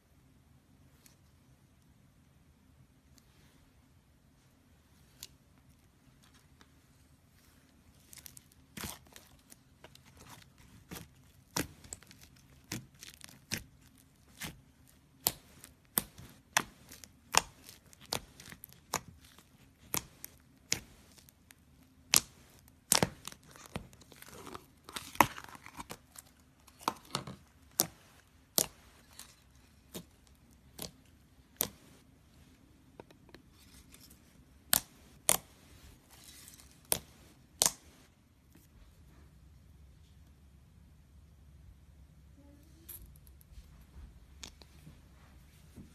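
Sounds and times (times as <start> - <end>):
slime popping and crackling: 8.0 - 32.0.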